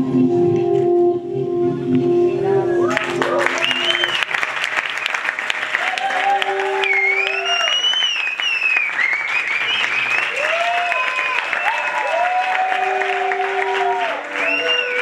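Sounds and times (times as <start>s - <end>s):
people cheering: 2.7s - 15.0s
whistles: 2.8s - 5.3s, 6.7s - 12.2s, 13.0s - 15.0s
audience applauding: 2.8s - 15.0s.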